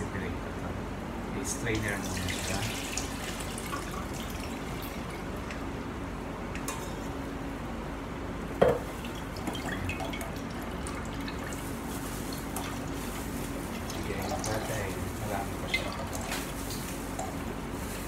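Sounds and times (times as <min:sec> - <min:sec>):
low steady hum: 0:00.0 - 0:18.0
liquid dripping through strainer: 0:08.9 - 0:17.4.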